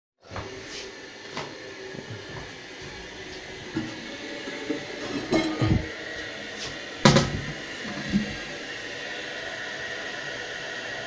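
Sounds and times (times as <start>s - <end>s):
porcelain lid clinks and scrapes: 5.0s - 5.8s.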